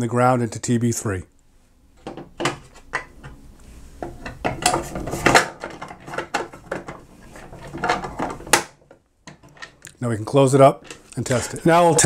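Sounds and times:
plastic cover clicks and rattles: 0:04.0 - 0:07.0.

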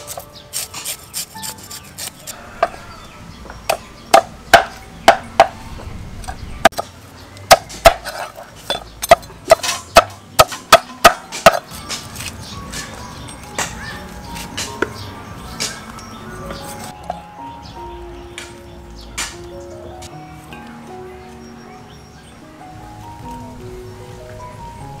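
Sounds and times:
cleaver chopping on wooden board: 0:03.6 - 0:05.6, 0:07.5 - 0:12.0.

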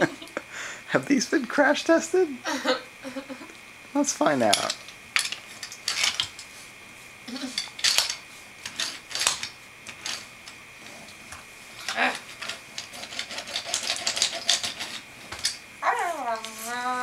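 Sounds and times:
wooden toy trains clacking: 0:13.0 - 0:15.0.

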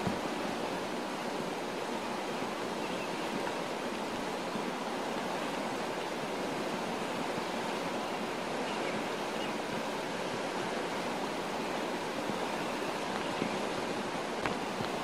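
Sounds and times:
fast-flowing floodwater rushing: 0:00.0 - 0:15.0.

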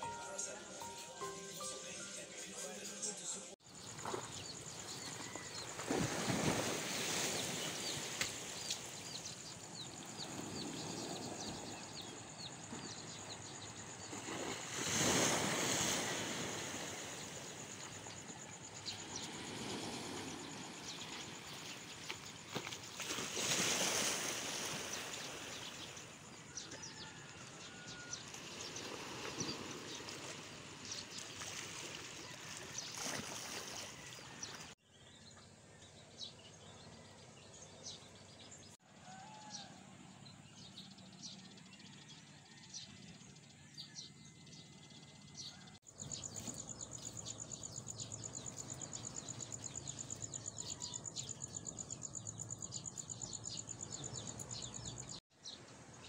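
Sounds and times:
birds chirping: 0:00.0 - 0:38.7, 0:40.3 - 0:55.6
insect trill: 0:03.6 - 0:32.0
sea wash: 0:04.2 - 0:34.8.

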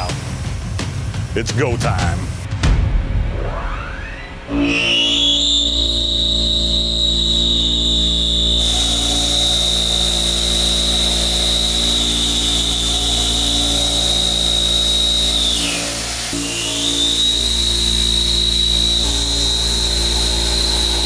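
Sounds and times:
high-pitched milling whine: 0:03.6 - 0:21.0
loud hissing cutting noise: 0:04.6 - 0:21.0.

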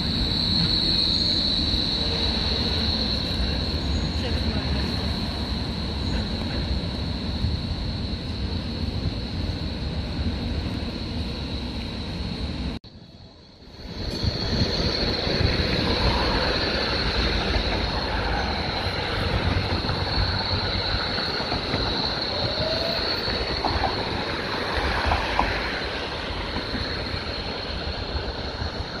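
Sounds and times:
electric tram passing: 0:00.0 - 0:29.0
wind rumble on microphone: 0:13.8 - 0:29.0.

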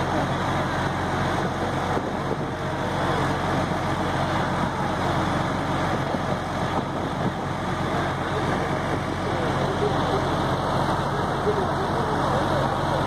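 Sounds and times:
large vehicle engine idling: 0:00.0 - 0:13.0
street noise: 0:00.0 - 0:13.0.

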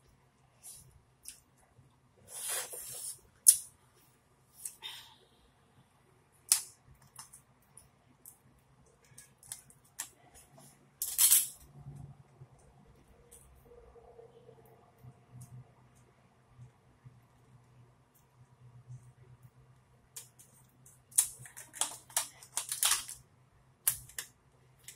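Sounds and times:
lobster shell cracking: 0:21.1 - 0:23.2.

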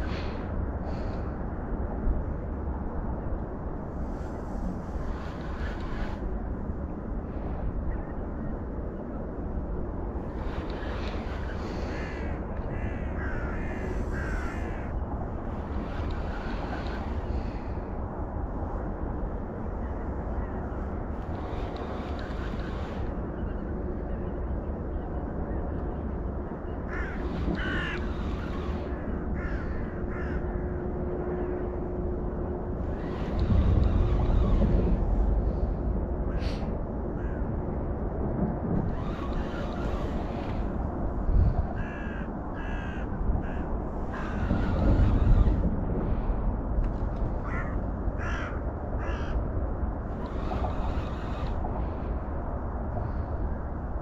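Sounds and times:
low background rumble: 0:00.0 - 0:54.0
crows cawing: 0:11.7 - 0:15.0, 0:26.9 - 0:30.8, 0:37.2 - 0:37.4, 0:41.8 - 0:45.2, 0:47.4 - 0:49.4.

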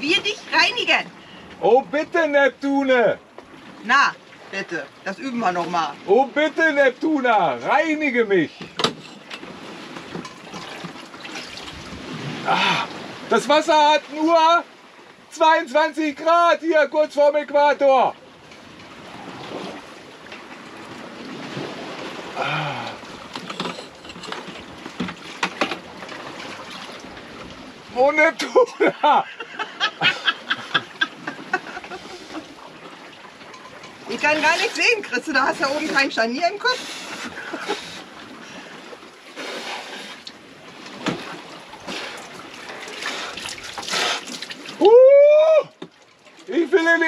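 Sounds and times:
wind and water rushing: 0:00.0 - 0:47.0
water splashing on a person: 0:39.4 - 0:46.6.

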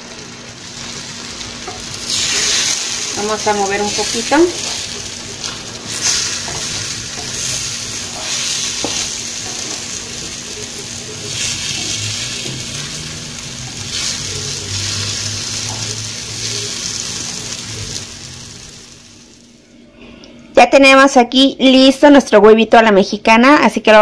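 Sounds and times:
eggs sizzling in a frying pan: 0:00.0 - 0:19.6
spatula stirring: 0:01.6 - 0:13.1.

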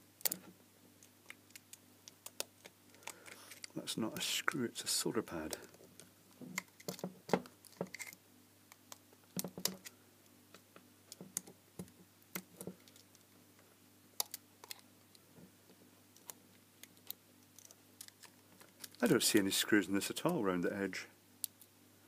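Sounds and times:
screwdriver tip clicking and scraping: 0:07.7 - 0:08.2.

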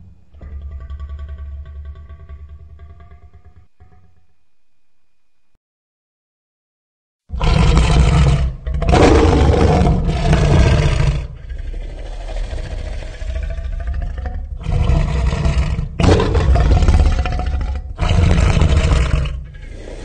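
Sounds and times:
deep dinosaur roars: 0:00.0 - 0:04.2, 0:07.3 - 0:20.0
low growl: 0:00.0 - 0:04.2, 0:07.3 - 0:20.0.

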